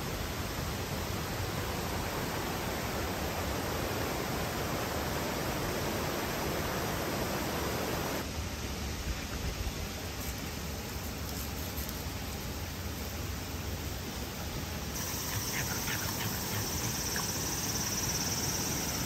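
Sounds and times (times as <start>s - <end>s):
stream rushing over rocks: 13.1s - 19.0s.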